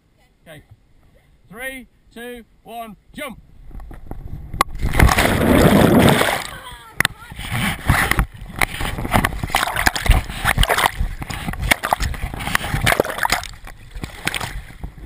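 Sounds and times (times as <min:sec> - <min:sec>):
river water splashing: 0:04.8 - 0:06.7, 0:07.4 - 0:14.9
water slapping camera housing: 0:07.0 - 0:14.8.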